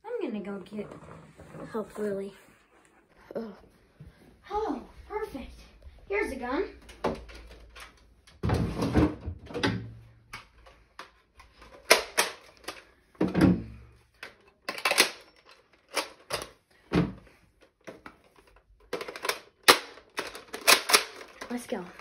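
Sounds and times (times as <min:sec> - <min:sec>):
plastic toy gun clacks: 0:10.4 - 0:12.9, 0:14.2 - 0:16.6, 0:17.8 - 0:22.0.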